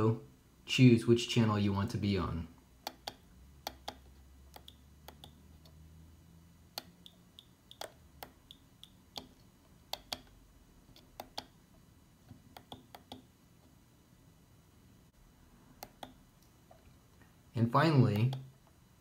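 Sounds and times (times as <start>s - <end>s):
faint low hum: 0.0s - 19.0s
push buttons clicking: 2.8s - 5.8s, 6.7s - 11.6s, 12.3s - 13.3s, 15.8s - 16.2s, 18.1s - 18.5s.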